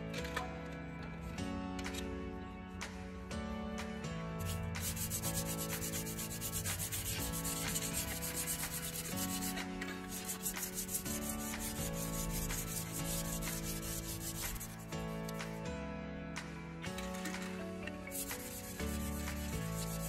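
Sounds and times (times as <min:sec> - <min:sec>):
sandpaper scraping on metal: 0:04.6 - 0:15.4, 0:18.1 - 0:20.0.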